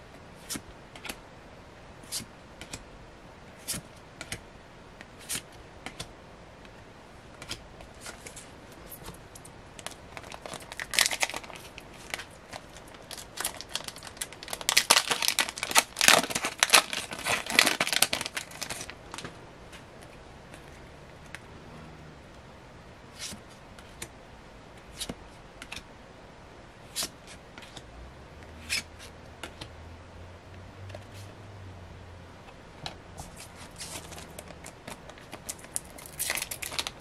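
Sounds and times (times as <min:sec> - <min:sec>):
foil wrapper crinkling and tearing: 0:09.8 - 0:19.2, 0:33.8 - 0:37.0.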